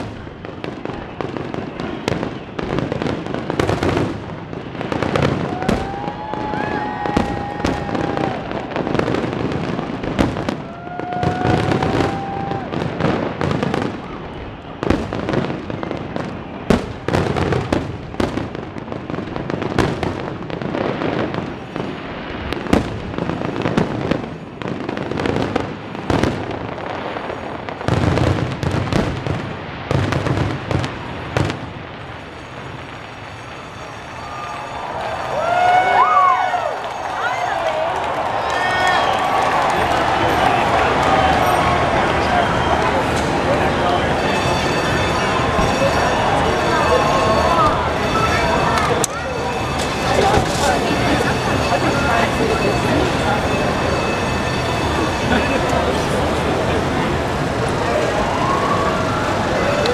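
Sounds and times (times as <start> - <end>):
fireworks bursts and bangs: 0.0 - 59.9.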